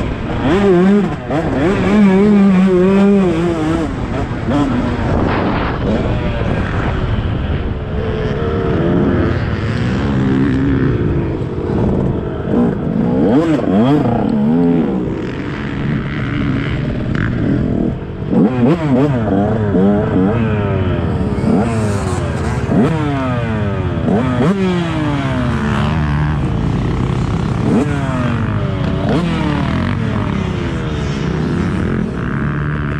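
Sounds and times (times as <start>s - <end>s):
motocross bike engine revving: 0.0s - 32.9s.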